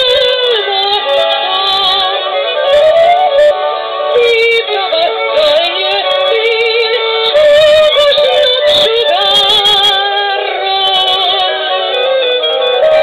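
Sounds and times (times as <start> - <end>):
woman singing with vibrato: 0.0 - 3.5, 4.1 - 13.0
violin cello and cimbalom band: 0.0 - 13.0.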